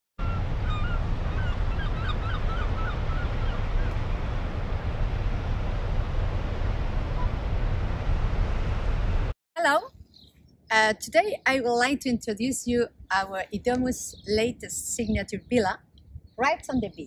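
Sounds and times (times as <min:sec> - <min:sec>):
wind: 0:00.2 - 0:17.0
small bird chirping: 0:09.9 - 0:10.5.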